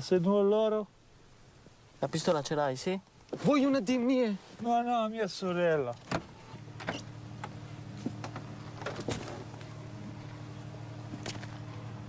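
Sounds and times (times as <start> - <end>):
steady low hum: 6.0 - 12.0.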